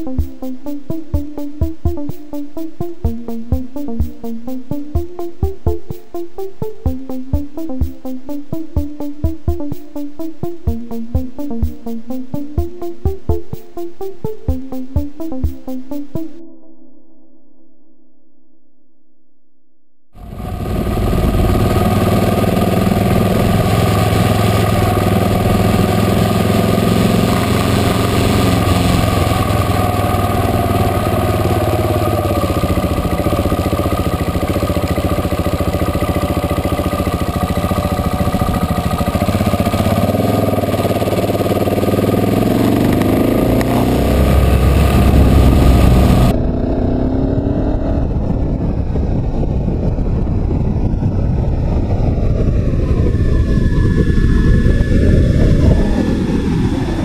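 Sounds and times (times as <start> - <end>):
motorcycle engine accelerating: 0.0 - 16.4, 20.2 - 57.0
wind rushing over microphone: 20.2 - 40.5, 42.0 - 57.0.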